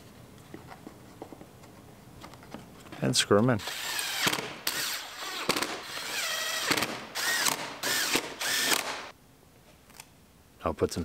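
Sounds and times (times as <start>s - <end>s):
cordless drill driving screws: 3.6s - 9.1s.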